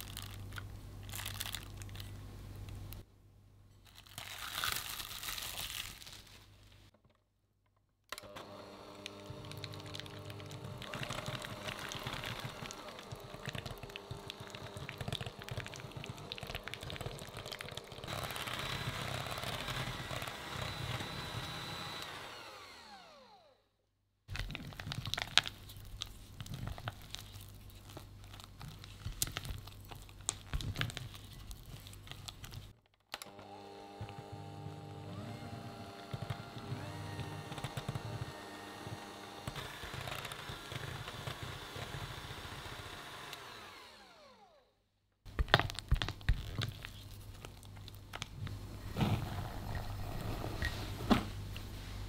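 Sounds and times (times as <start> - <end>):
electric hand mixer running: 8.2 - 23.6, 33.2 - 44.6.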